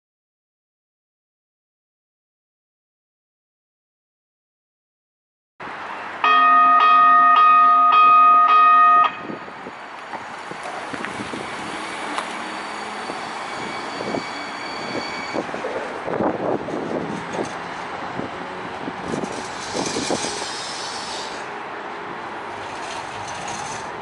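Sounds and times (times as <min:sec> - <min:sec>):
rail car rolling: 0:05.6 - 0:24.0
light rail warning gong: 0:06.2 - 0:09.5.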